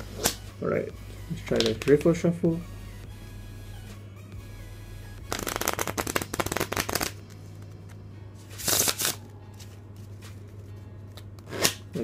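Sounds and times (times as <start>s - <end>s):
cards fluttering cascade: 5.3s - 7.2s
playing cards riffle shuffled: 5.3s - 10.4s.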